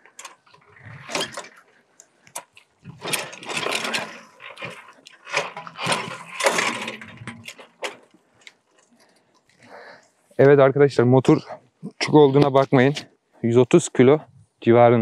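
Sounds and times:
metallic clattering and scraping: 0.0 - 9.2.

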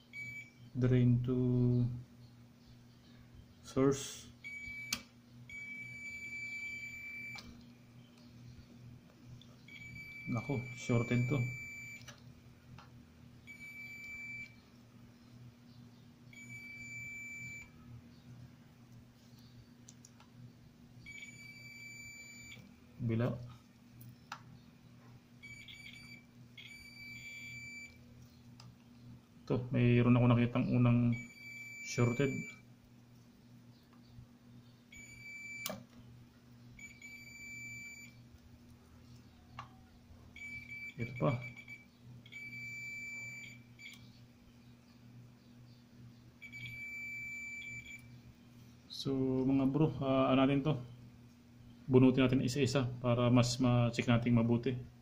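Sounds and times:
multimeter high beep: 0.0 - 0.7, 4.4 - 7.5, 9.7 - 12.1, 13.5 - 14.6, 16.3 - 17.8, 21.0 - 22.7, 25.4 - 28.0, 31.0 - 32.6, 34.9 - 35.8, 36.8 - 38.2, 40.4 - 44.1, 46.4 - 48.1.

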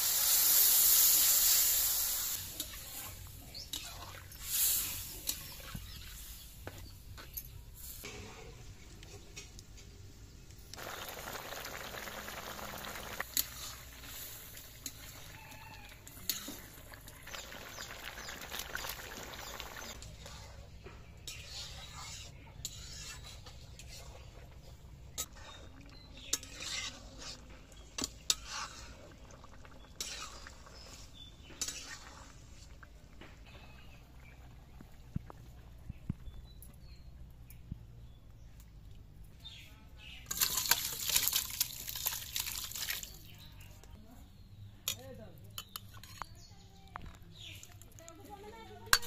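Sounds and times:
curry boiling in a wok: 0.0 - 7.1, 10.7 - 36.4
metal ladle scraping a wok: 0.5 - 6.4, 13.0 - 16.9, 19.8 - 29.2, 29.8 - 32.7.

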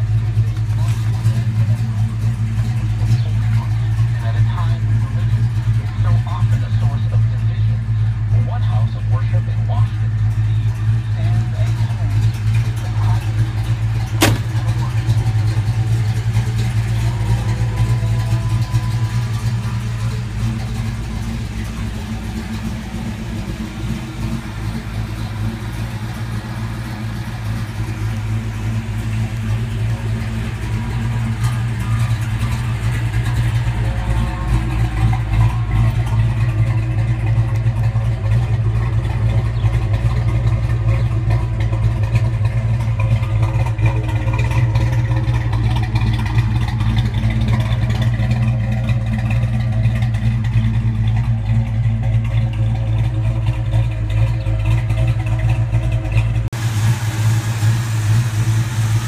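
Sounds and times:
car engine idling: 0.0 - 59.0
sharp knock: 14.2 - 14.6.

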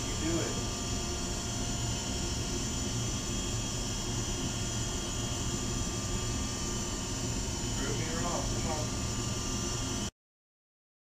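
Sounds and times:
low droning hum with hiss: 0.0 - 10.1.

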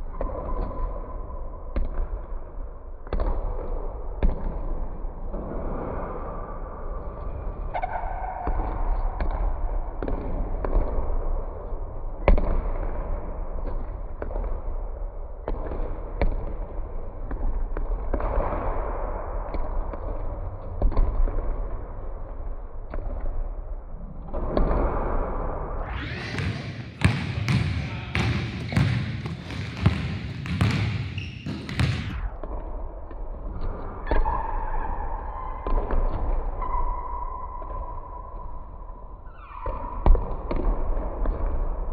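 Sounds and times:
basketballs bouncing on hardwood floor: 26.3 - 32.2.

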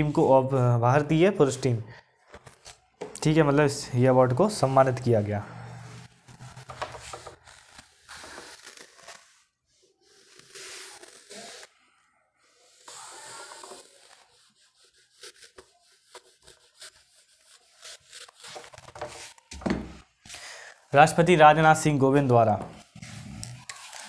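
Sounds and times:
scratchy rubbing and scraping: 4.2 - 19.6, 22.6 - 24.0.

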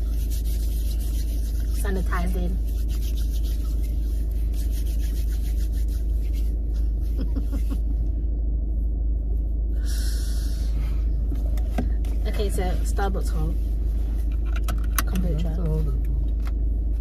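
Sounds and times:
car cabin rumble: 10.8 - 17.0.

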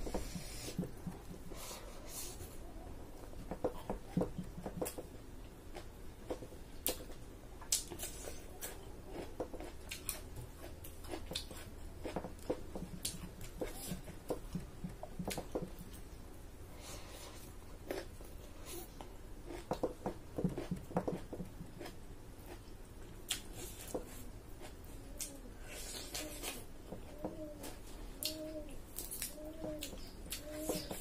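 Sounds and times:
person chewing with wet mouth noises: 7.7 - 16.0.

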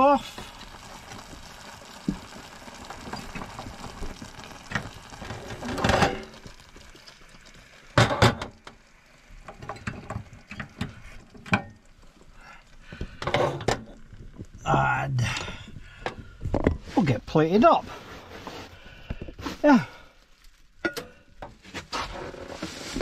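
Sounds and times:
gas hob hissing: 0.0 - 20.0
pot scraping and clattering: 2.2 - 7.3, 13.0 - 14.5, 20.8 - 23.0.

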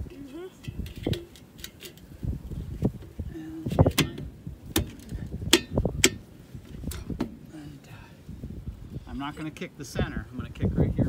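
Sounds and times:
metallic clicks and knocks: 0.6 - 2.1.

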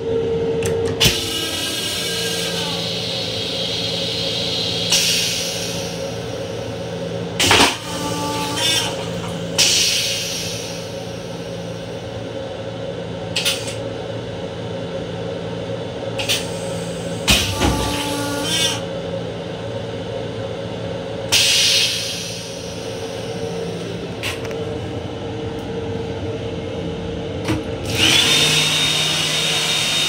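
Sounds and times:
railcar hum: 0.0 - 30.0
clunk and short whine: 0.5 - 6.1, 7.3 - 10.8, 13.3 - 13.9, 16.1 - 18.9, 21.3 - 24.8, 27.4 - 28.0
toilet flush hiss: 2.8 - 6.2.

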